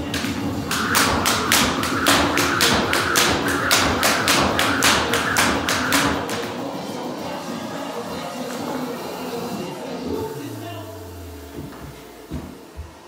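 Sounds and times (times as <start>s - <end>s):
jump rope slapping floor: 0.0s - 6.6s.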